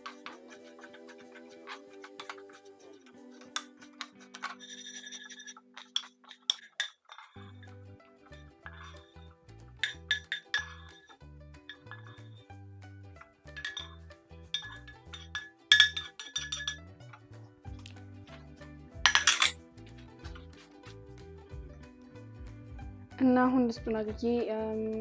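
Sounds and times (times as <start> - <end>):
metal spoon scraping a pan: 0.0 - 12.6, 13.4 - 21.1
background music with bass: 7.5 - 25.0.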